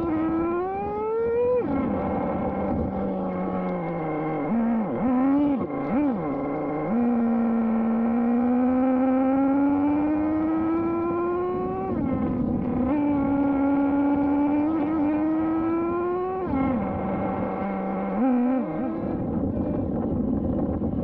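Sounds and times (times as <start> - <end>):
nitro engine screaming: 0.0 - 19.9.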